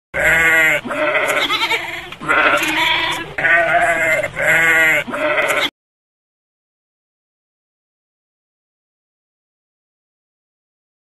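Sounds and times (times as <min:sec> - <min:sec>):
goat bleating: 0:00.2 - 0:05.7.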